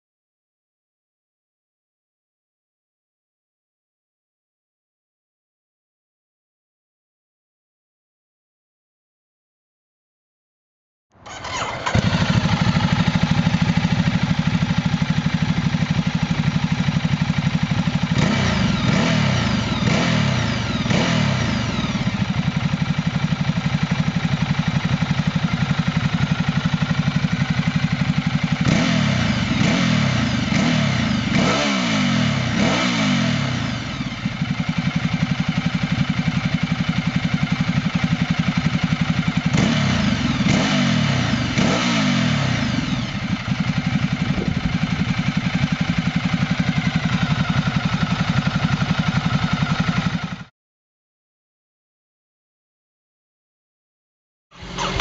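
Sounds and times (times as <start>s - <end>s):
motorcycle engine idling and revving: 11.2s - 50.5s, 54.6s - 55.0s.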